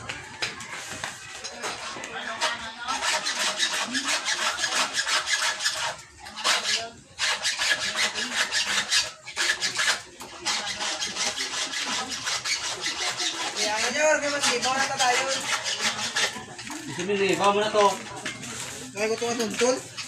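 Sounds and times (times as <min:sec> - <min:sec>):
rasping strokes by hand: 0:01.6 - 0:16.7.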